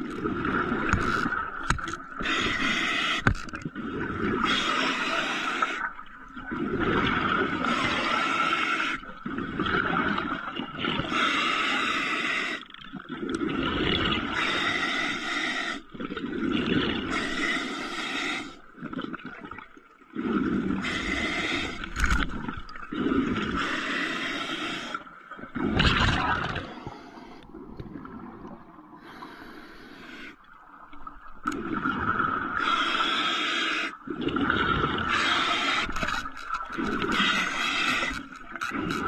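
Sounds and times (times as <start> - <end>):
diver breathing through regulator: 2.2 - 3.5, 4.3 - 5.9, 11.0 - 12.7, 14.2 - 15.9, 17.0 - 18.7, 20.2 - 22.3, 22.9 - 25.1, 29.0 - 30.4, 32.6 - 39.0.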